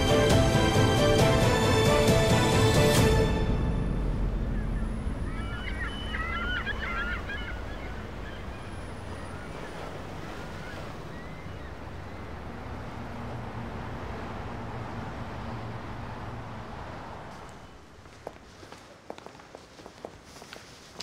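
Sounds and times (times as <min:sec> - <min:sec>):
low city rumble: 0:00.0 - 0:21.0
bird calls: 0:04.5 - 0:12.6.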